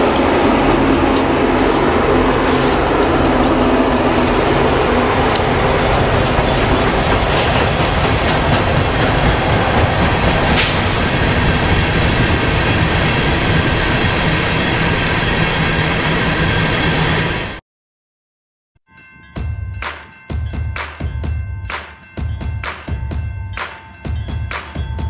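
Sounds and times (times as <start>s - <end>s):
diesel locomotives running: 0.0s - 17.6s
train wheels rumbling and clattering: 0.0s - 17.6s.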